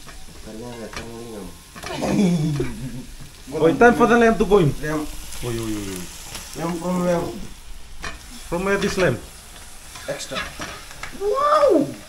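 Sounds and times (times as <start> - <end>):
meat sizzling in hot oil: 0.0 - 12.0.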